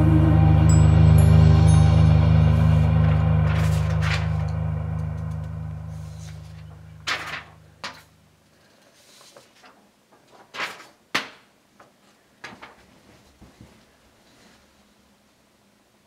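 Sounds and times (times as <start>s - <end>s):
paper sheets rustling: 3.4s - 4.6s, 6.0s - 8.2s, 8.8s - 14.6s.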